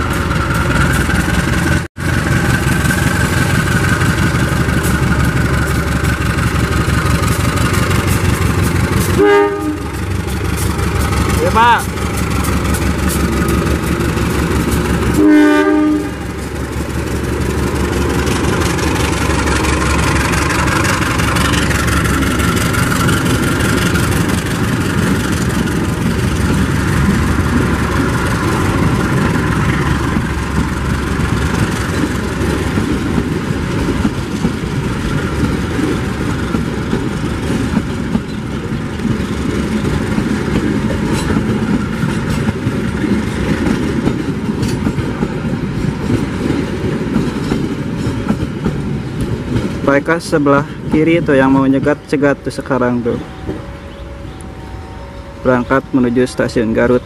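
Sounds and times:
wheels clattering over rails: 0:00.0 - 0:53.7
locomotive engine rumble: 0:00.0 - 0:57.0
locomotive horn blast: 0:09.1 - 0:10.0, 0:15.1 - 0:16.2, 0:53.1 - 0:56.2.

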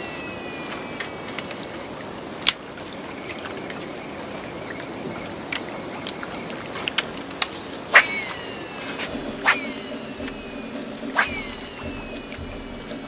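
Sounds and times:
reel spool whine: 0:00.0 - 0:13.0
fishing reel clicks: 0:07.4 - 0:12.8.

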